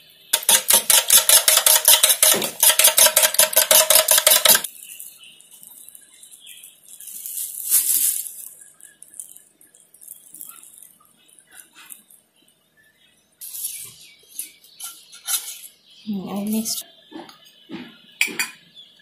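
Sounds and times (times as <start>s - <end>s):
utensil beating eggs in metal bowl: 0.4s - 4.7s
handling sounds: 1.6s - 12.2s.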